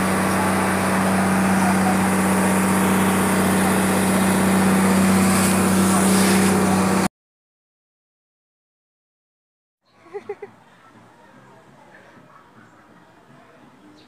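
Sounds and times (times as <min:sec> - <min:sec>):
boat engine droning: 0:00.0 - 0:07.1.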